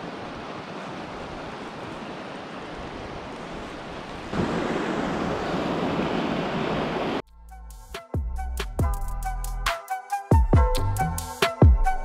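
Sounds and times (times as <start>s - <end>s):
river rushing over rapids: 0.0s - 7.2s.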